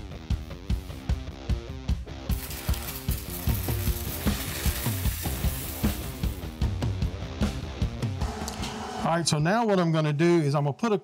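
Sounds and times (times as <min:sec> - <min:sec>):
arc welder crackling and sizzling: 0:00.0 - 0:01.3, 0:02.2 - 0:06.6
rock music with drums: 0:00.0 - 0:08.8.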